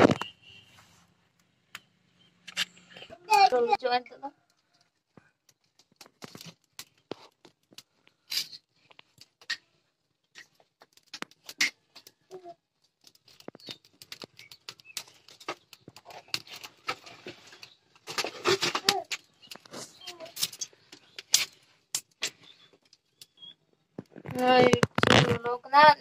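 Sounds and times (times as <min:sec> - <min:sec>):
wood fire crackling and popping: 0:01.3 - 0:25.8.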